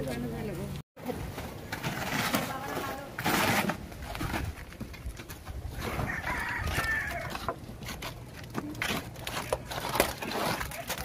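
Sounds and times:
shovels scraping wet concrete: 1.6s - 4.7s, 5.8s - 11.0s
rooster crowing: 5.8s - 7.5s.

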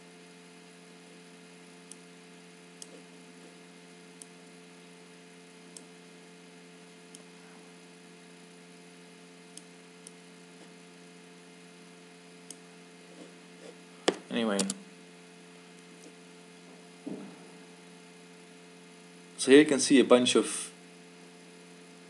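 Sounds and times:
faint electrical hum: 0.0s - 22.0s.

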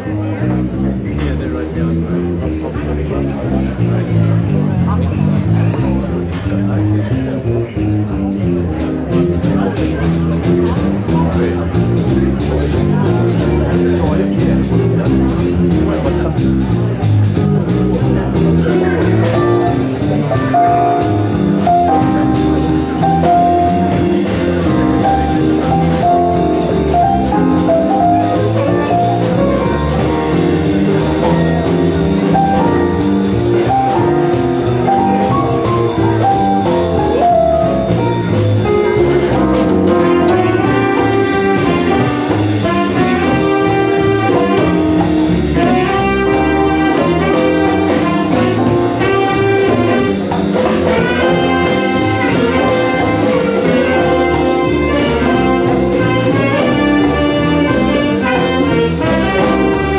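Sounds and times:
drum kit cymbals: 8.5s - 59.9s
saxophone and brass sections: 18.0s - 59.9s.

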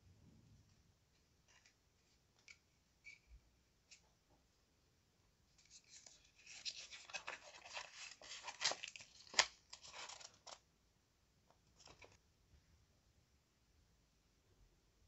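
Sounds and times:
paper card crinkling: 5.6s - 10.6s, 11.7s - 12.2s.

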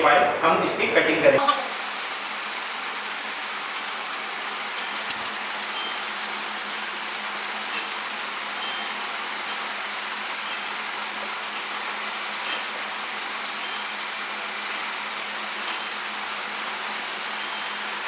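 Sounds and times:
steady hiss: 1.4s - 18.0s.

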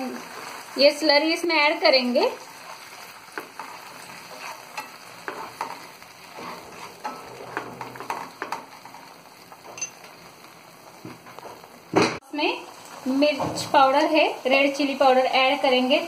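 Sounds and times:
sauce sizzling: 0.0s - 16.0s
spatula scraping frying pan: 2.5s - 10.2s.

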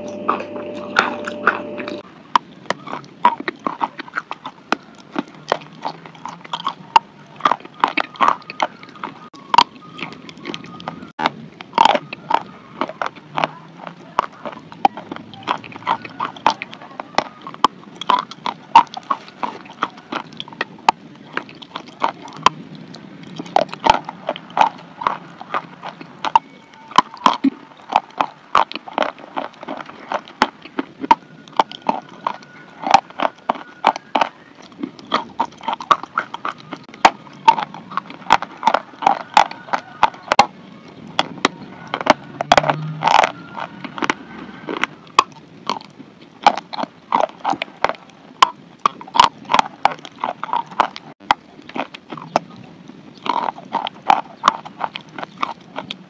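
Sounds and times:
chewing chalk crunching: 0.0s - 56.0s.

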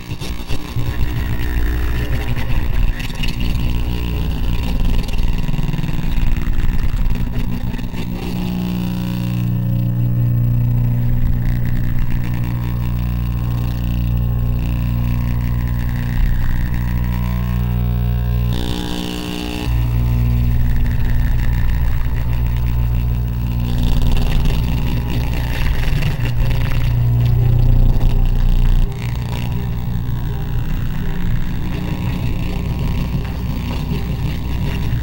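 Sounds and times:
crackle and hiss: 0.0s - 35.0s
loud low electronic drone: 0.0s - 35.0s.

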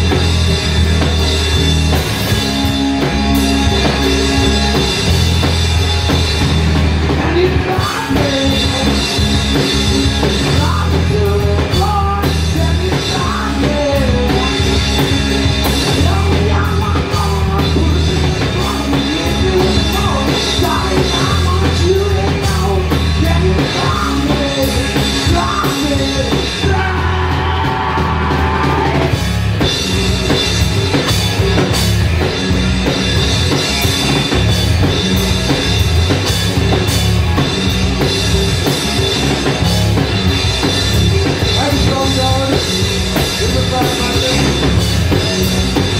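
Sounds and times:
live rock band playing: 0.0s - 45.9s
person singing: 7.2s - 9.3s, 10.4s - 15.1s, 15.8s - 29.2s, 41.3s - 45.3s.

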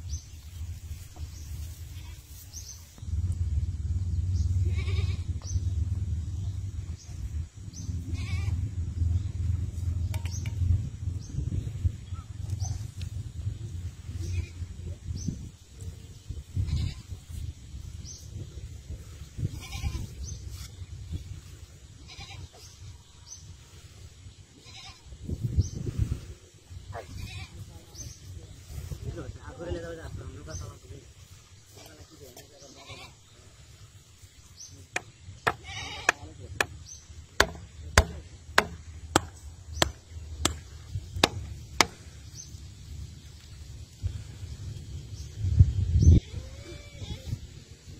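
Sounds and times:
low steady rumble: 0.0s - 26.4s, 33.4s - 47.9s
low rumble: 2.6s - 21.9s
livestock bleating: 4.6s - 5.4s, 8.1s - 8.7s, 14.2s - 14.6s, 16.6s - 17.1s, 19.5s - 20.2s, 22.0s - 22.7s, 24.6s - 25.1s, 26.9s - 27.7s, 32.6s - 33.2s, 35.5s - 36.2s, 46.2s - 47.4s.

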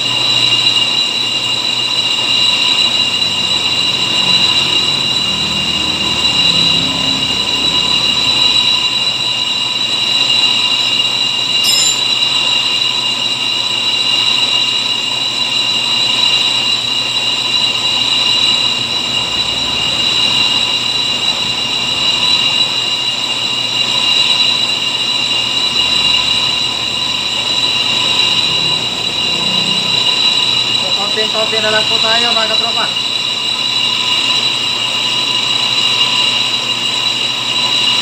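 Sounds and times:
cutting tool squealing on disc: 11.6s - 12.6s
brake lathe running: 25.1s - 36.6s.

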